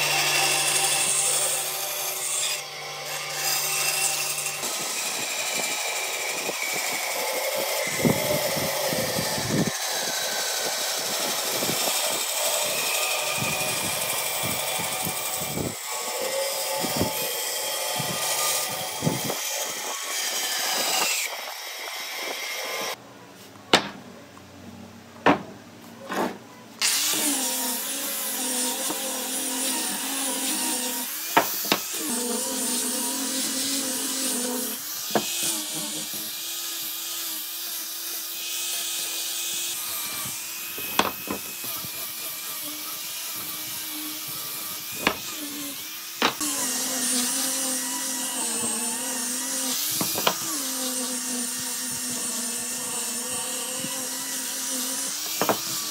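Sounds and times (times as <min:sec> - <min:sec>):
power tool whining: 0:00.0 - 0:23.0, 0:26.8 - 0:55.9
wood knocking: 0:23.7 - 0:24.0, 0:25.2 - 0:26.4, 0:55.4 - 0:55.6.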